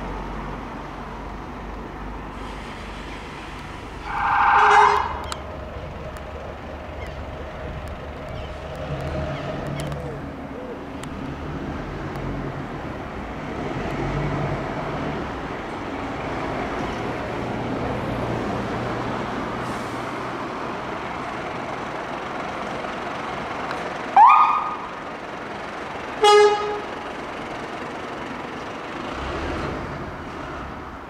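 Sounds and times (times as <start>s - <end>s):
fire engine diesel engine running: 1.4s - 13.3s, 19.3s - 29.2s
horn blast: 4.0s - 5.2s, 26.2s - 26.9s.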